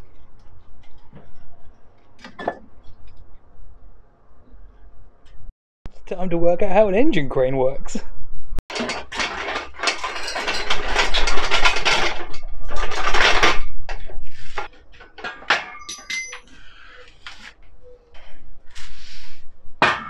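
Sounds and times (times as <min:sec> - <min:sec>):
metallic clanks and clinks: 0:08.7 - 0:13.6, 0:15.0 - 0:16.6
metal clattering and scraping: 0:08.7 - 0:17.4
metallic ring: 0:15.6 - 0:16.6.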